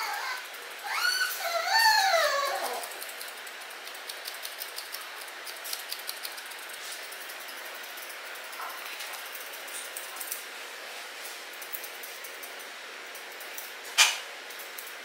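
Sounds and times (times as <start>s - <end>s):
dog whining: 0.0s - 3.1s
scissors snipping fur: 2.3s - 10.4s.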